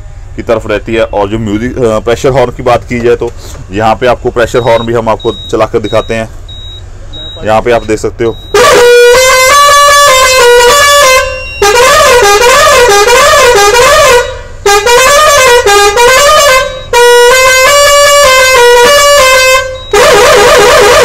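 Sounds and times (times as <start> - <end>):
musical truck horn tune: 8.5 - 21.0.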